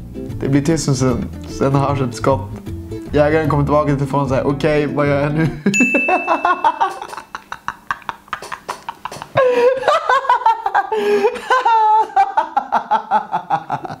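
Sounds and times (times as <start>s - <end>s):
man laughing hard: 5.4s - 14.0s.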